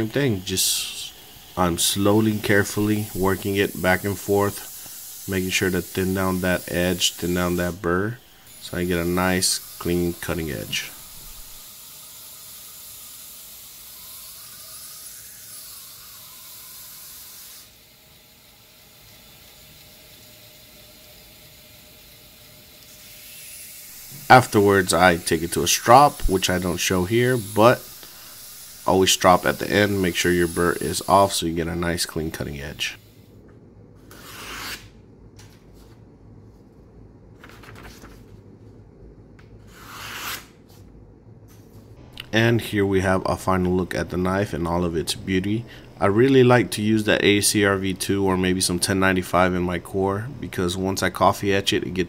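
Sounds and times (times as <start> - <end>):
belt grinder running: 22.8 - 31.9
knife slicing paper: 34.1 - 34.9, 39.6 - 40.7.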